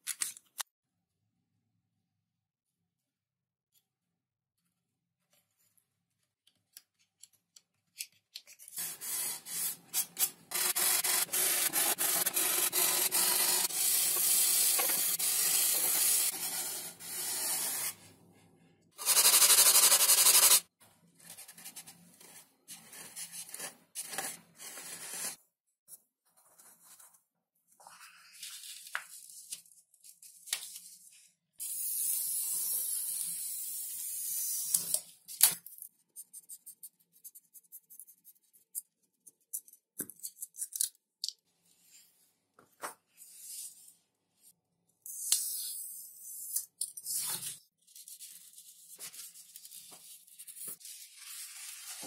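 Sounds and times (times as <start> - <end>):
sandpaper scraping: 8.8 - 18.2, 19.0 - 20.7.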